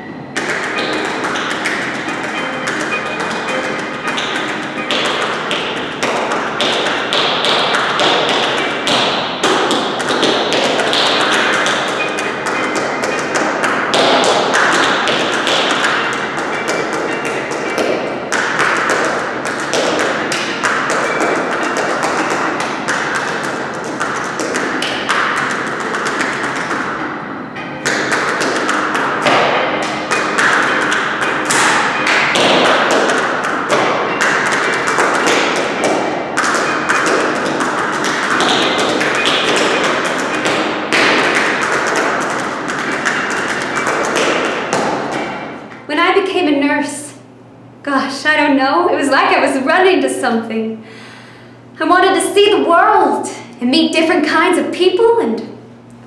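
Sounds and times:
music playing: 0.0 - 46.5
dance shoes tapping on wooden floor: 0.4 - 27.0, 27.8 - 45.9.

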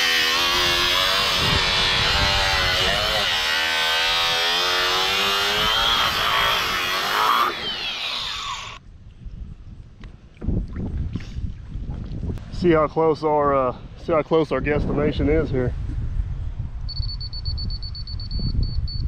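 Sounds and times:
power saw cutting plastic pipe: 0.0 - 8.8.

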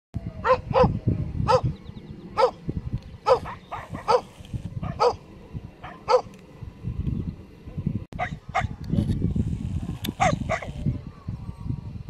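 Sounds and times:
dog barking: 0.4 - 1.7, 2.4 - 2.6, 3.3 - 5.2, 5.8 - 6.3, 8.2 - 8.7, 10.2 - 10.8.

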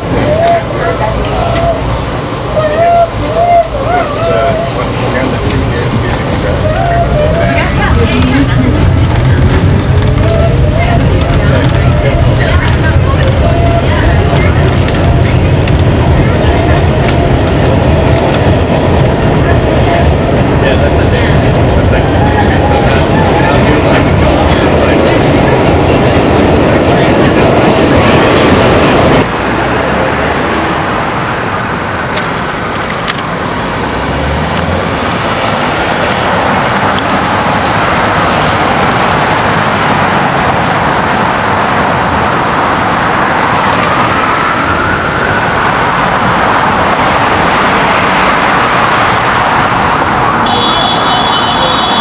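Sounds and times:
distant siren wail: 0.0 - 5.0, 6.5 - 8.4, 35.0 - 52.0
passing cars: 0.0 - 52.0
subway train noise: 0.0 - 52.0.

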